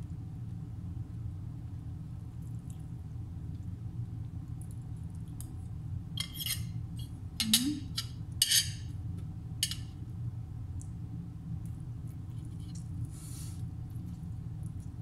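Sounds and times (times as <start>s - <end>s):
cutlery scraping on ceramic plate: 6.2s - 8.8s.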